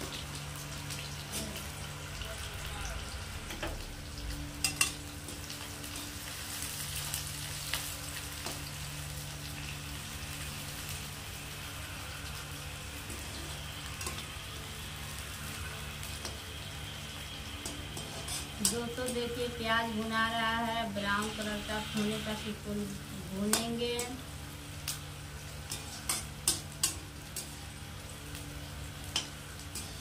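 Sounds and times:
onions sizzling in oil: 0.0s - 30.0s.

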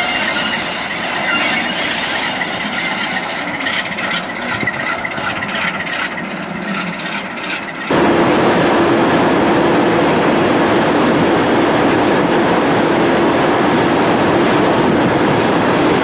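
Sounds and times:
wheels squealing on rails: 0.0s - 7.9s
diesel locomotive engine running: 0.0s - 16.0s.

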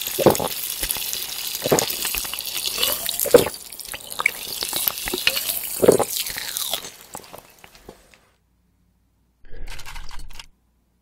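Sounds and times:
person gulping: 0.0s - 7.5s
soda fizzing in can: 0.0s - 7.6s.

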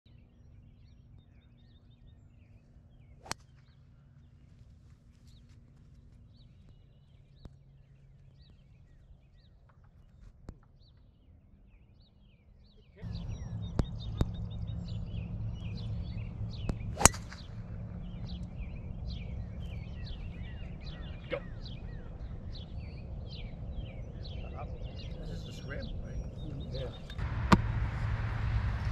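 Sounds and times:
birds chirping: 0.1s - 28.9s
rush of outdoor noise: 13.0s - 28.9s
golf club striking ball: 16.0s - 18.7s, 27.2s - 28.7s.

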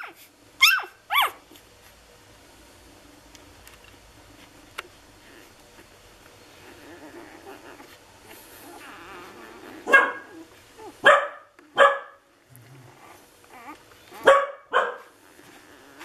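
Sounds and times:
puppies yelping: 0.0s - 1.6s, 5.2s - 12.1s, 12.8s - 16.0s
puppies whimpering: 5.2s - 11.0s, 12.6s - 14.3s, 15.0s - 16.0s.

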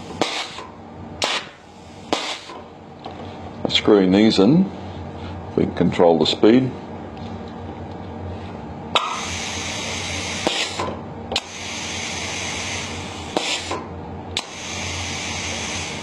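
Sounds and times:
compressed air hissing: 0.0s - 2.6s, 9.0s - 13.8s, 14.4s - 16.0s
pneumatic valve clicking: 0.2s - 2.7s, 9.0s - 16.0s.

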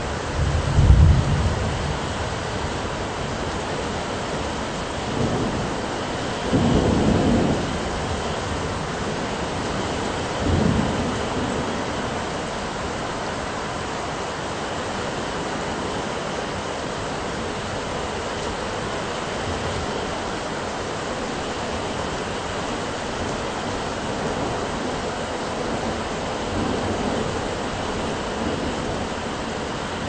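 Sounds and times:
thunder rumbling: 0.0s - 13.8s
steady rain hiss: 0.0s - 30.0s.

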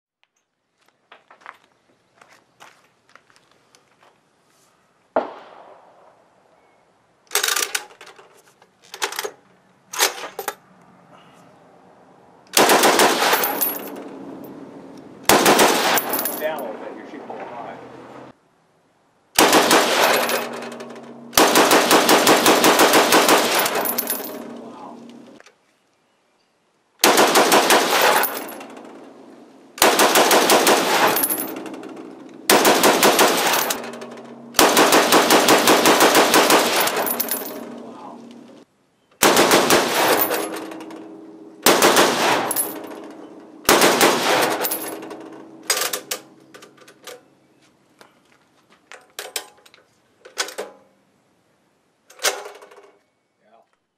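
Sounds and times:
machine gun firing bursts: 12.6s - 13.6s, 15.3s - 16.1s, 19.4s - 23.9s, 27.0s - 28.4s, 29.8s - 31.2s, 32.5s - 33.8s, 34.6s - 37.2s, 39.2s - 40.4s, 41.6s - 42.5s, 43.7s - 44.6s.

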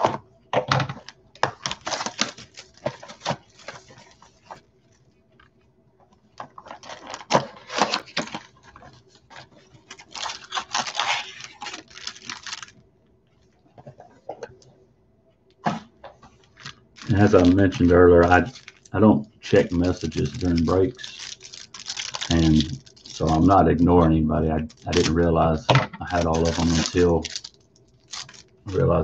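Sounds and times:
plastic wrapping crinkling: 0.8s - 5.6s, 6.2s - 12.8s, 16.3s - 25.4s, 26.1s - 29.0s
cardboard packaging tearing: 1.4s - 4.1s, 6.6s - 12.7s, 16.6s - 18.9s, 19.5s - 25.2s, 26.1s - 29.0s.

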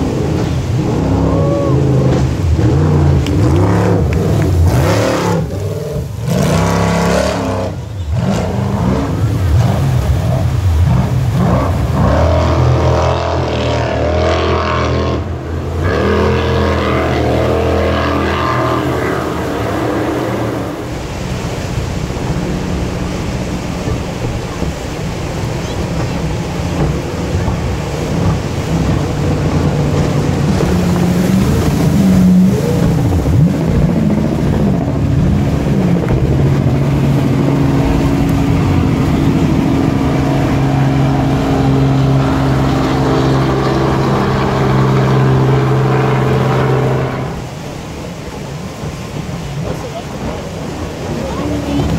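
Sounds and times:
jet boat engines running hard: 0.0s - 51.9s
whitewater rushing: 0.0s - 51.9s.

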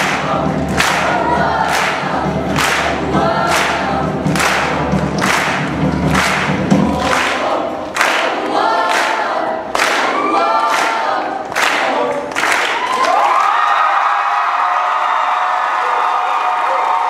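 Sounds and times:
sharp rhythmic accents: 0.0s - 12.4s
choir singing in harmony: 0.0s - 12.8s.

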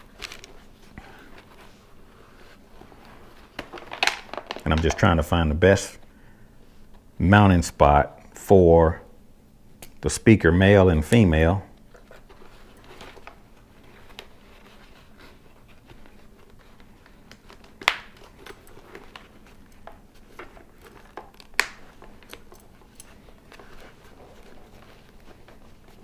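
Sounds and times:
rustling and scraping of padding: 18.3s - 26.0s.

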